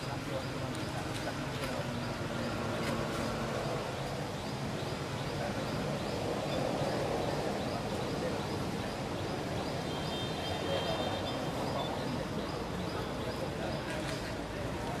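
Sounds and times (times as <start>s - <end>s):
outdoor ambience: 0.0s - 15.0s.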